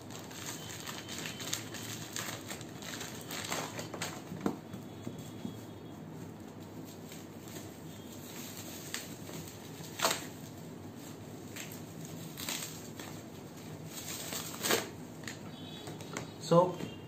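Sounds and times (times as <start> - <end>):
scissors cutting plastic wrapping: 0.0 - 4.4, 6.9 - 10.6, 11.4 - 13.2, 13.8 - 15.4
plastic crinkling and rustling: 0.0 - 16.3.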